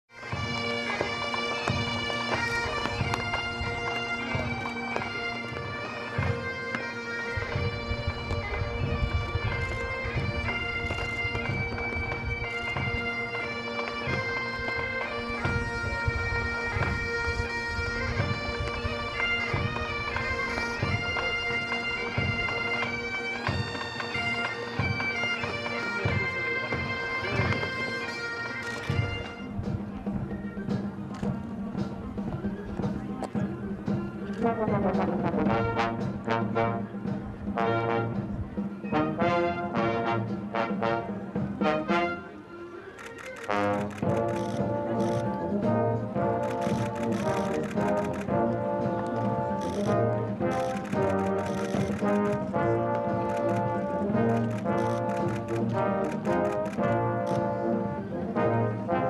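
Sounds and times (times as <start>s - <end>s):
bagpipes playing: 0.1s - 29.6s, 41.6s - 59.0s
low drum beats: 0.3s - 28.1s, 28.7s - 41.8s, 43.7s - 59.0s.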